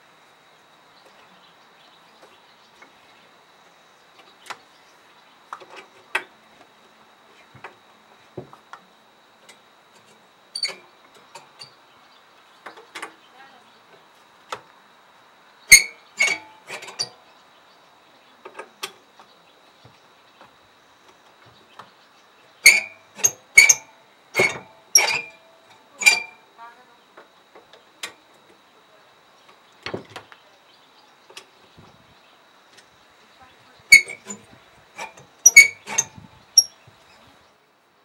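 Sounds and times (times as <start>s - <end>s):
screwdriver clinking on metal: 22.6s - 25.4s, 26.0s - 26.4s, 33.9s - 34.4s, 35.0s - 36.7s.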